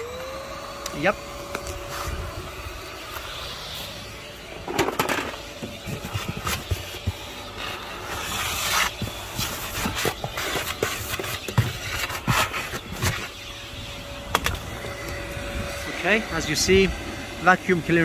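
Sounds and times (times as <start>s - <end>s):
vacuum cleaner humming: 0.0s - 18.0s
nozzle scraping floor mat: 4.7s - 13.4s.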